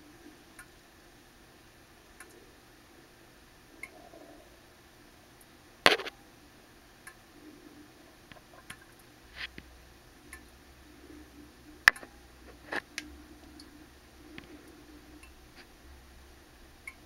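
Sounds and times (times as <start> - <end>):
faint low hum: 0.0 - 17.0
small clicks and ticks: 2.1 - 2.5, 5.4 - 6.2, 7.0 - 7.3, 8.2 - 9.7, 10.3 - 15.8
sharp click: 5.9 - 6.2.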